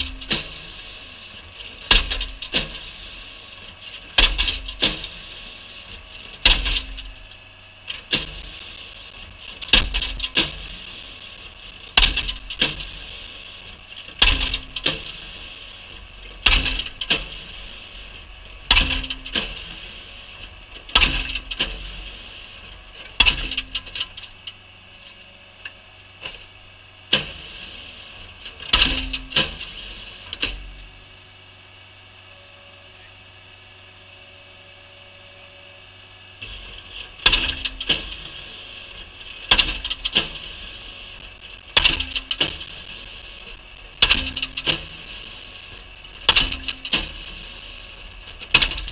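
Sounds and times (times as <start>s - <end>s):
engine running: 0.0s - 48.9s.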